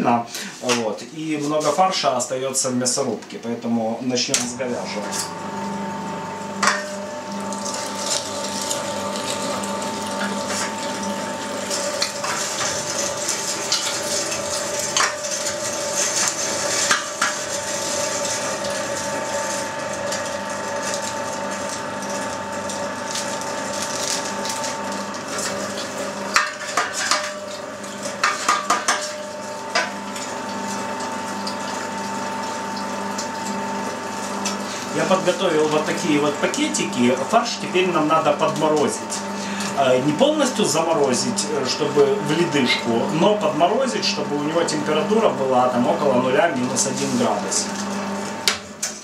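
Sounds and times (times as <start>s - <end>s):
electric meat grinder running: 4.1s - 49.0s
plastic bag crinkling: 20.7s - 26.0s.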